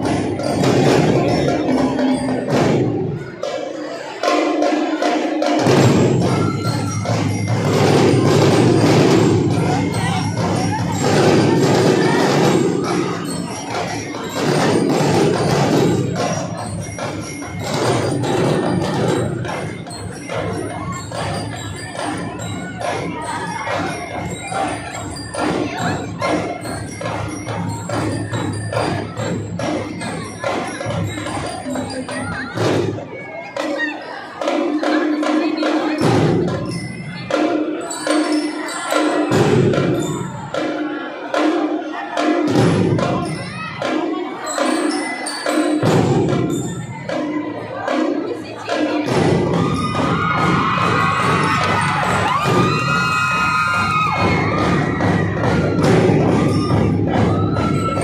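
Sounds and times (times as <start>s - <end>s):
marching drums beating: 0.0s - 33.0s, 45.7s - 58.0s.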